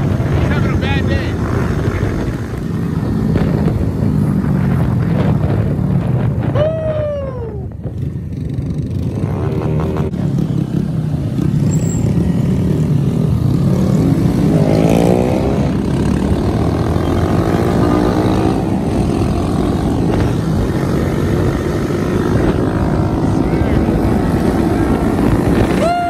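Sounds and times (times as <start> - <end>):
mini bike engines revving: 7.9 - 26.0.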